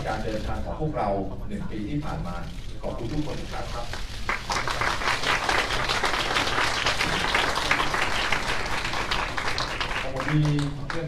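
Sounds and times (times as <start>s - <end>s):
crowd applauding: 3.9s - 11.0s.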